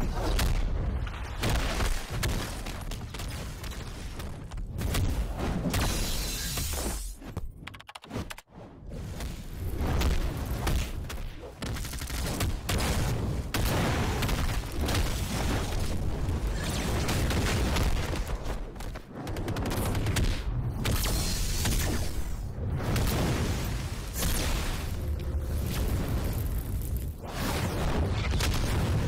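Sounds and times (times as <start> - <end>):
cartoon booms and blasts: 9.8 - 18.7, 27.2 - 29.0.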